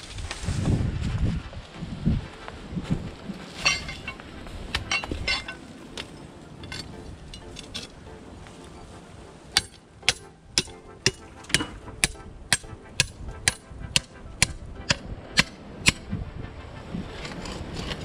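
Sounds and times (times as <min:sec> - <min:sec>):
hand tool striking: 0:03.6 - 0:08.0, 0:09.5 - 0:16.1.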